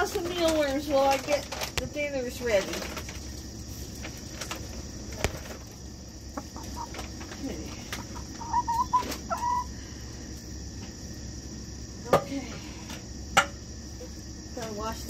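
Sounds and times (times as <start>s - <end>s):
hens clucking: 2.8s - 10.8s
hen wavering calls: 6.3s - 10.0s.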